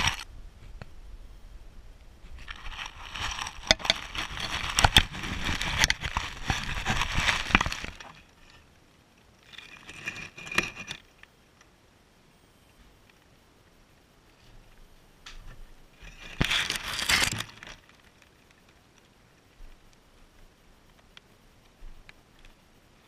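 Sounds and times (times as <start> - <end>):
dry hay rustling and crackling: 2.3 - 8.6, 16.0 - 19.2.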